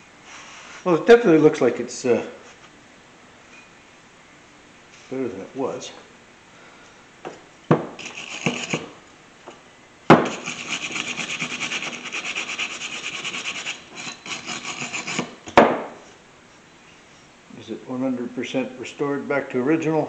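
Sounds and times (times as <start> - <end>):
sharp knock of tool on part: 10.1 - 10.4.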